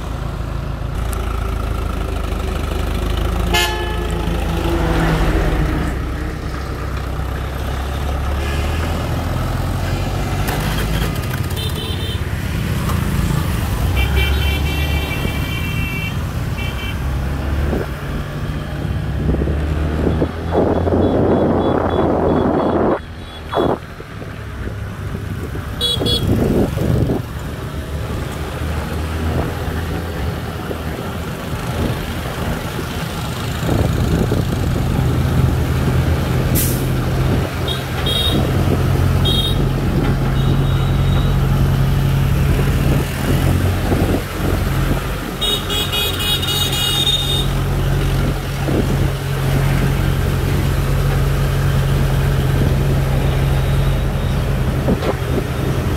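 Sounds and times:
horn toots: 0:03.5 - 0:04.8.

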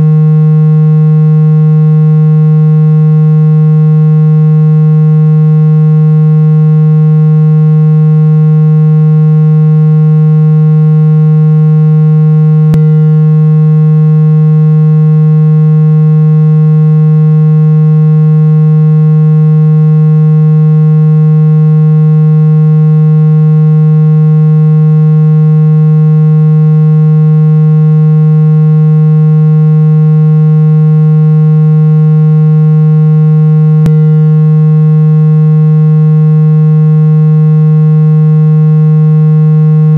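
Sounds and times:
loud steady low tone: 0:00.0 - 0:39.9.

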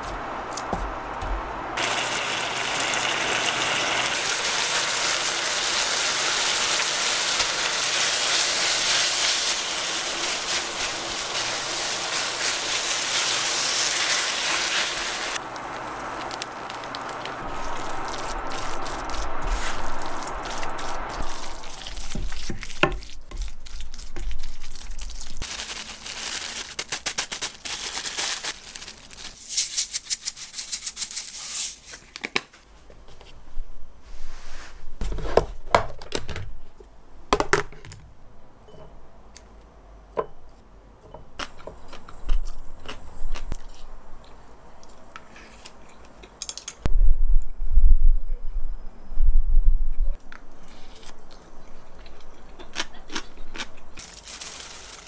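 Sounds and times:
rice sizzling in a pan: 0:01.8 - 0:22.5
dried seaweed crackling: 0:03.9 - 0:30.4, 0:50.7 - 0:55.0.

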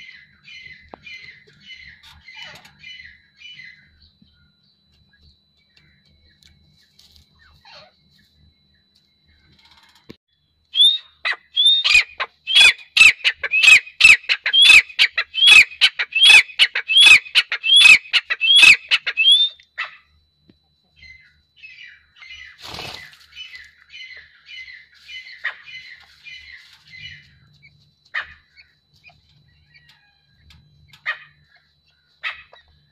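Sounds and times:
francolin calling: 0:10.4 - 0:20.1
wings fluttering: 0:22.6 - 0:23.7.

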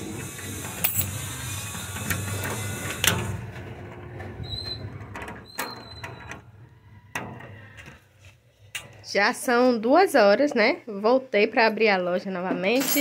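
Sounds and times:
short squeaks: 0:04.2 - 0:07.0.

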